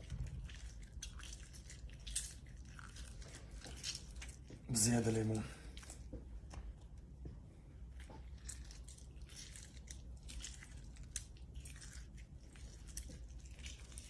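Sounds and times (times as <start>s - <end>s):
spoon squishing into lemon: 0.0s - 4.7s, 7.8s - 14.0s.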